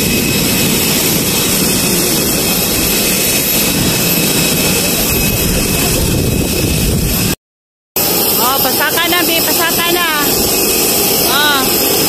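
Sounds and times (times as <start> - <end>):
jet turbine rush and whine: 0.0 - 7.4, 8.0 - 12.0
wind rumble on microphone: 0.0 - 7.4.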